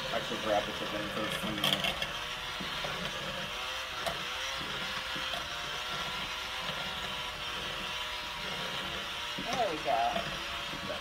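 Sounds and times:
electric hand mixer running: 0.0s - 11.0s.

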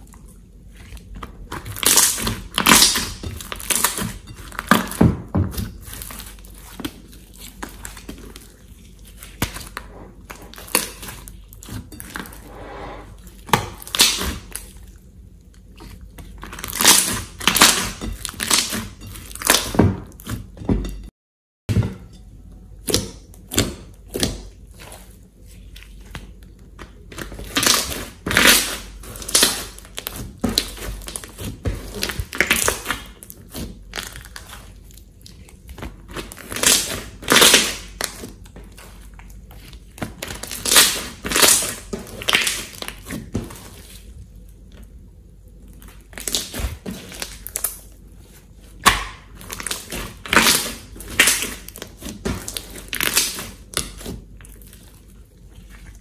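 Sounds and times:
slime squelching and popping: 0.0s - 12.4s, 13.3s - 20.4s, 22.8s - 44.1s, 45.7s - 56.0s.

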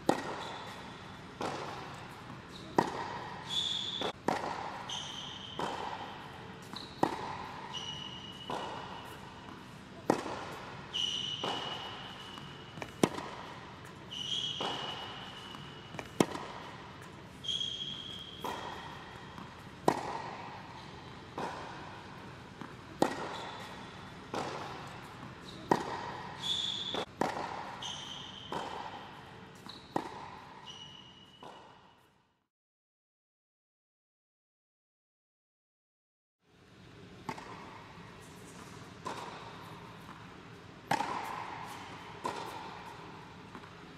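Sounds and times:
racquet hitting ball: 0.0s - 31.7s, 38.6s - 43.8s
tennis ball bouncing: 0.0s - 31.8s, 37.0s - 43.9s
shoe squeaks on court: 0.2s - 1.0s, 3.4s - 4.2s, 4.8s - 9.4s, 10.9s - 13.1s, 14.0s - 16.3s, 17.3s - 19.4s, 23.3s - 24.1s, 26.3s - 27.1s, 27.7s - 30.0s, 30.6s - 31.8s.

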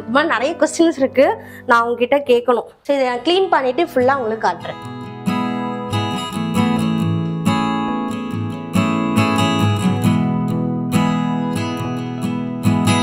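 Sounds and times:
acoustic guitar strumming chords: 3.5s - 13.0s.

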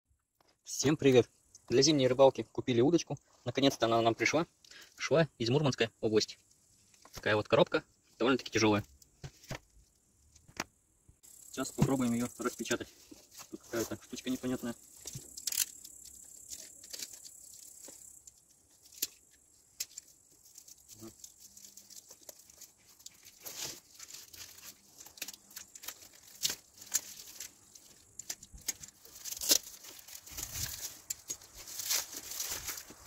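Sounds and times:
plastic film crinkling: 11.8s - 33.0s
packing tape tearing: 19.8s - 33.0s.

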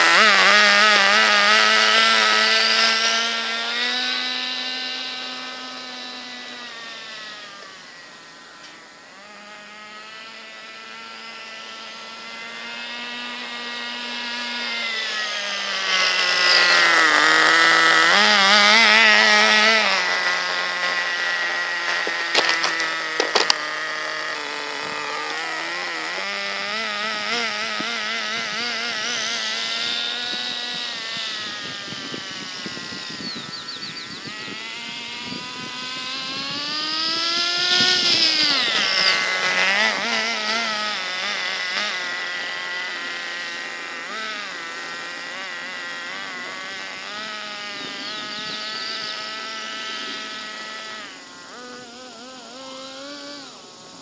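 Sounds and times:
rc car engine revving: 0.0s - 54.0s
sharp clicks: 21.9s - 25.0s.

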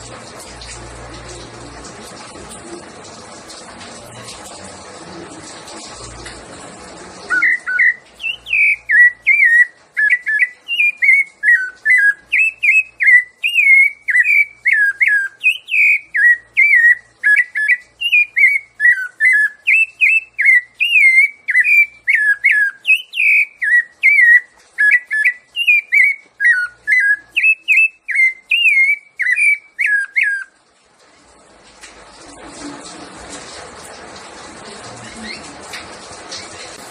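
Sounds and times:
thrush singing fluted whistles: 7.3s - 30.5s.

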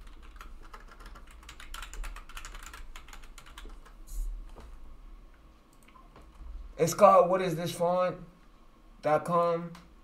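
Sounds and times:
computer keyboard typing: 0.0s - 4.0s
steady low hum: 0.0s - 10.0s.

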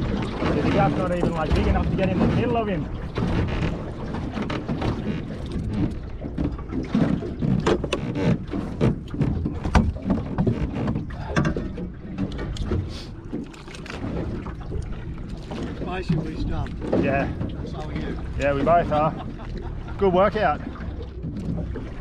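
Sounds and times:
wind buffeting microphone: 0.0s - 13.3s
knocks and clatter: 0.0s - 19.0s
water slapping boat hull: 0.0s - 22.0s.

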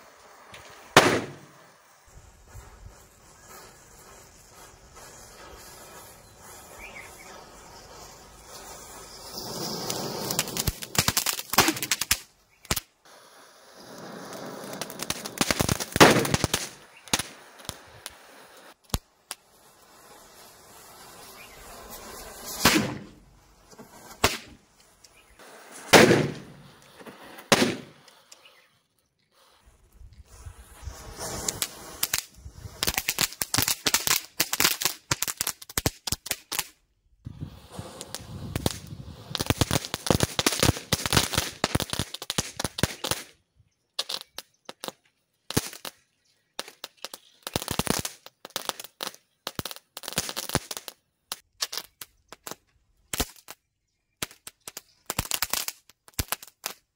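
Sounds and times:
burning fuse hissing: 0.0s - 43.3s
firecracker bangs: 0.8s - 1.6s, 14.7s - 17.4s, 21.4s - 23.2s, 25.8s - 26.7s, 27.5s - 28.0s.

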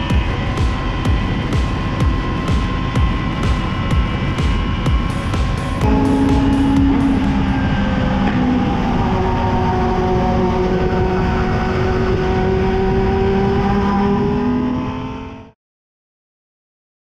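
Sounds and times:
motorcycle engine running: 0.0s - 15.4s
wind rushing over microphone: 0.0s - 15.4s.

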